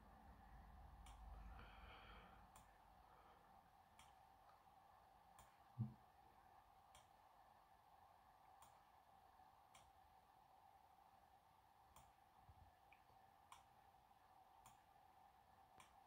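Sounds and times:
low steady hum: 0:00.0 - 0:16.0
computer mouse clicks: 0:01.0 - 0:01.3, 0:04.0 - 0:04.2, 0:06.9 - 0:07.2, 0:08.5 - 0:08.9, 0:09.7 - 0:10.0, 0:11.9 - 0:12.2, 0:12.9 - 0:13.8, 0:14.6 - 0:14.9, 0:15.7 - 0:16.0.

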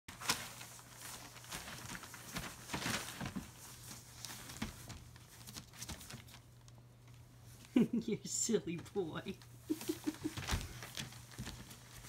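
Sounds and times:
newspaper rustling and crinkling: 0:00.1 - 0:07.4, 0:09.7 - 0:12.0.

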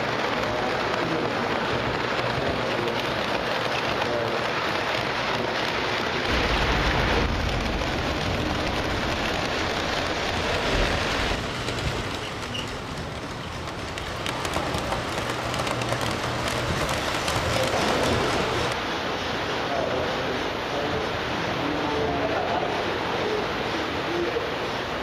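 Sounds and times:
model train rattling rumble: 0:00.0 - 0:18.8.

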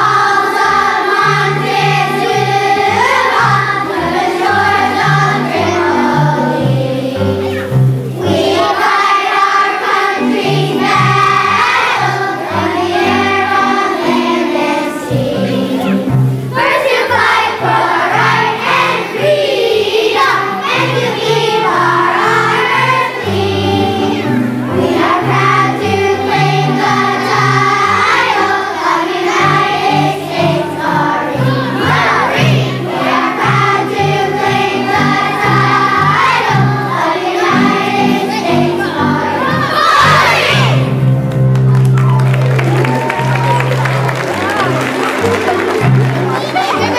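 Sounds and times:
children's choir singing: 0:00.0 - 0:41.3, 0:42.7 - 0:46.9
musical accompaniment: 0:00.0 - 0:46.9.

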